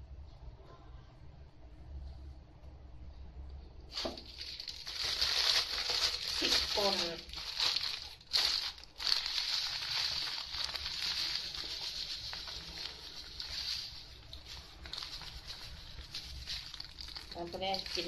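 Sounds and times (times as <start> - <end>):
chilli flakes pouring: 3.9 - 18.0
plastic bag crinkling: 3.9 - 18.0.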